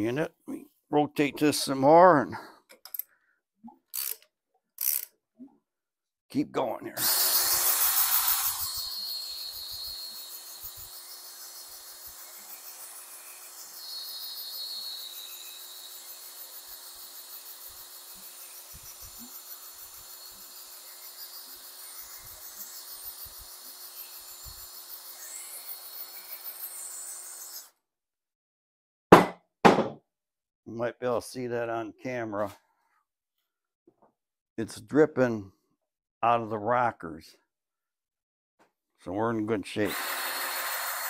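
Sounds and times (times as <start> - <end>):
cordless drill spinning: 7.0 - 26.6, 39.8 - 41.0.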